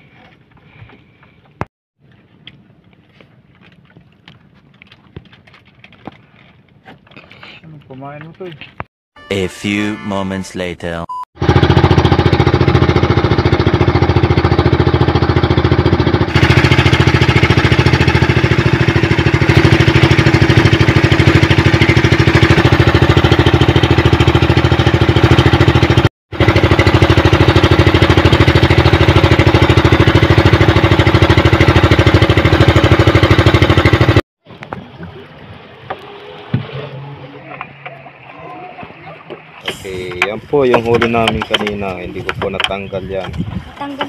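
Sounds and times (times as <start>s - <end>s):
boat engine running: 11.4s - 44.0s.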